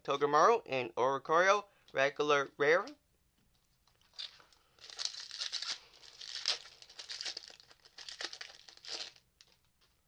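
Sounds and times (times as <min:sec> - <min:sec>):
foil wrapper tearing and crinkling: 0:04.1 - 0:09.6.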